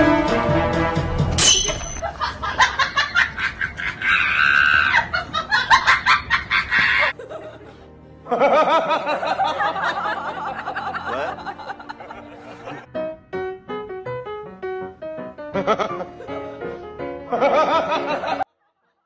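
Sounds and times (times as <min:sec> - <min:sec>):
background music: 0:00.0 - 0:03.6, 0:05.5 - 0:18.5
laughter: 0:02.0 - 0:12.9, 0:15.6 - 0:16.6, 0:17.3 - 0:19.0.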